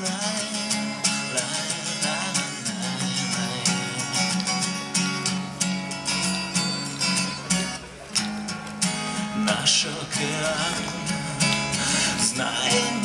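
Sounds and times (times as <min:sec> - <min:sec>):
man singing: 0:00.0 - 0:04.8, 0:09.2 - 0:13.0
acoustic guitar strumming: 0:00.0 - 0:13.0.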